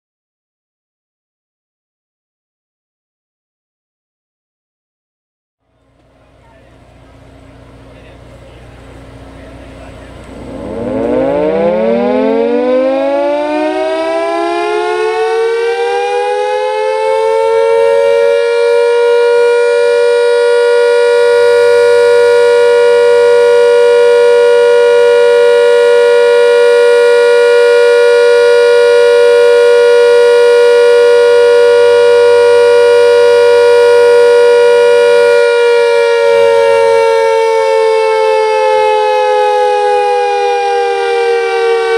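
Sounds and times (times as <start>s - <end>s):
mechanical siren winding up: 10.4s - 14.4s.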